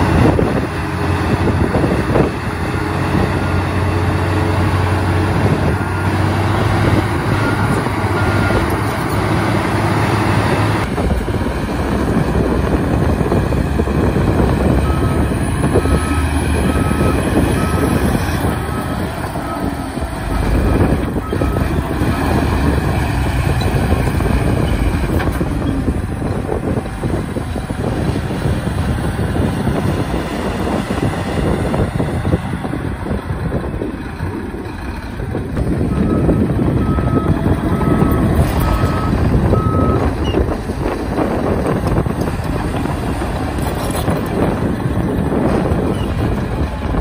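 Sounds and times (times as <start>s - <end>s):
heavy diesel engines running hard: 0.0s - 47.0s
reversing alarm beeping: 14.8s - 22.5s, 35.9s - 40.4s.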